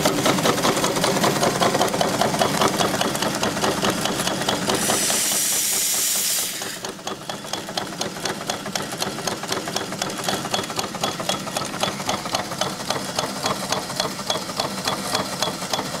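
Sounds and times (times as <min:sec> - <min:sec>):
steam engine clicking beat: 0:00.0 - 0:16.0
steam hissing: 0:03.4 - 0:07.3.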